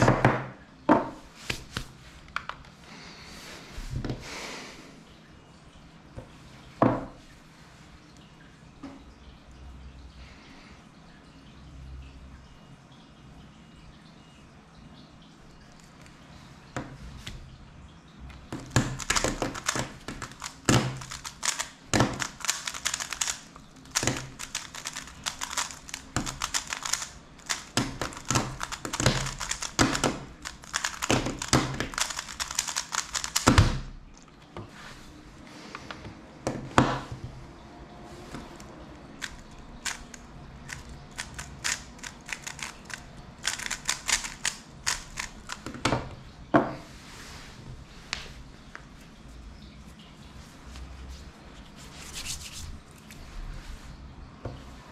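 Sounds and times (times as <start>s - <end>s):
speedcube clacking: 18.6s - 33.8s, 38.6s - 45.8s.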